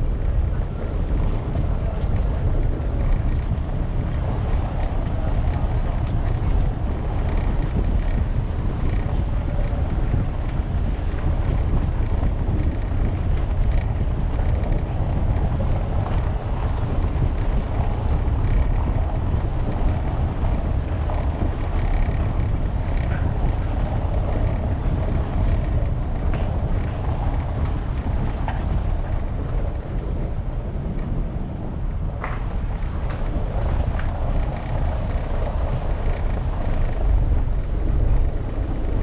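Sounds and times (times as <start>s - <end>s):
tyres rumbling on cobblestones: 0.0s - 39.0s
wind buffeting microphone: 0.0s - 39.0s
faint ticks: 1.9s - 29.7s.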